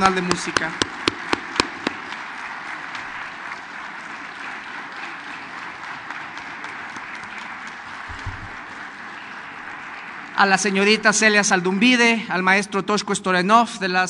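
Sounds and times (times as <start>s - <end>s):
audience applause: 0.0s - 11.4s.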